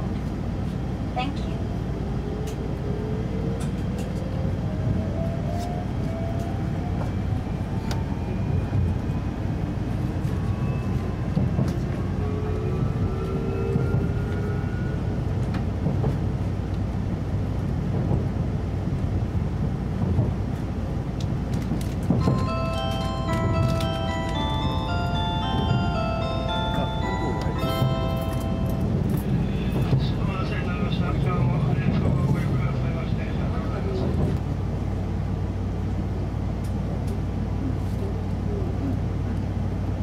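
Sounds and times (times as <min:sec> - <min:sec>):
wheels rumbling on rail: 0:00.0 - 0:40.0
chime: 0:22.2 - 0:28.9.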